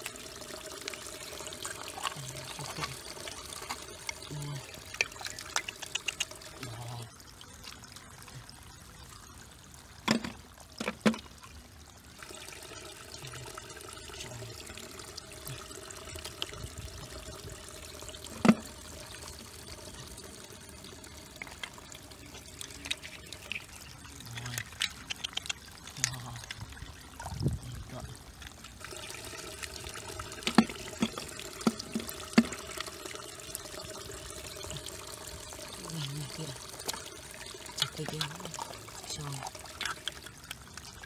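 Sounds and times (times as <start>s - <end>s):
water pouring and trickling: 0.0s - 41.0s
sharp knocks or splashes: 10.0s - 11.3s, 30.4s - 32.7s.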